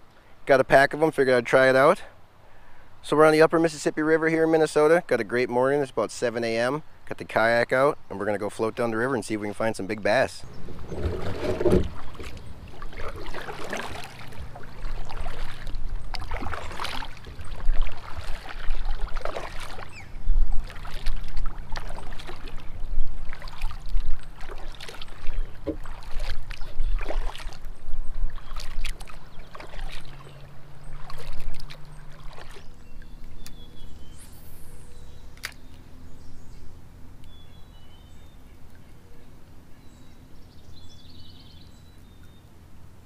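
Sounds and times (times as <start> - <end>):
kayak paddle splashing strokes: 9.5 - 36.2
low steady rumble: 9.7 - 16.1.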